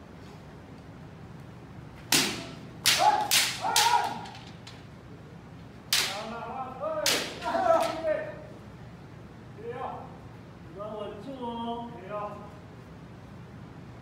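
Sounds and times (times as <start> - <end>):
bamboo swords striking: 2.1 - 4.5, 5.9 - 6.3, 7.0 - 8.1
fencers shouting: 2.3 - 4.6, 7.0 - 8.4.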